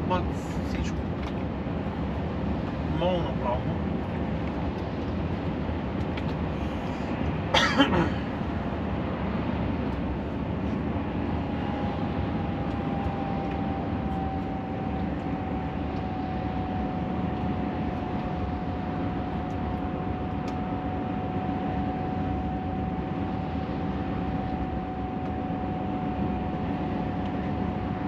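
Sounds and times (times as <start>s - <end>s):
truck engine and road noise: 0.0s - 28.0s
person coughing: 7.5s - 8.3s
faint whine sinking in pitch: 9.8s - 28.0s.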